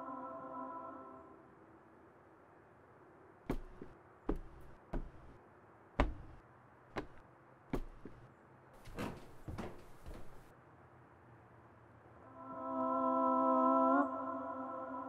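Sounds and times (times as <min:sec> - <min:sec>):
slow footsteps thudding: 0:03.5 - 0:05.4, 0:06.0 - 0:10.5.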